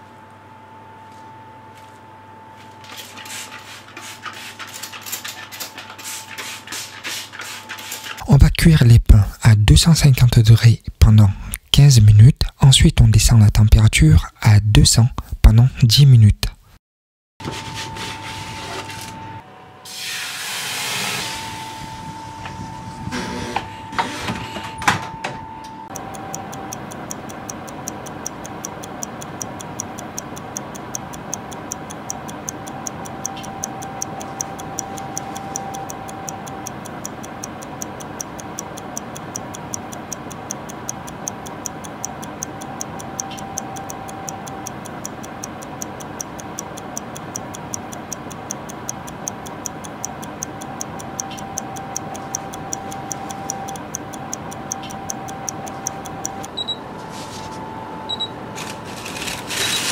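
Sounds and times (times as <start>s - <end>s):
whirring hum: 0.0s - 6.7s, 17.4s - 59.9s
clock ticking: 25.9s - 56.8s.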